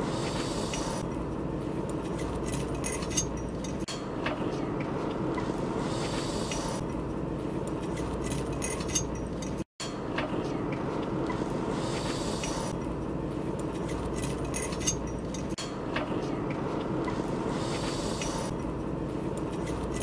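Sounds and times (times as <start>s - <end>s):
low background rumble and hum: 0.0s - 20.0s
faint clinks and ticks: 13.6s - 15.6s.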